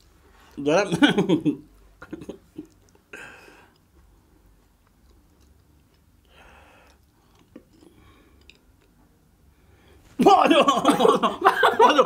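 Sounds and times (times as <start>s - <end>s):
soft chewing crunches: 2.5s - 9.2s.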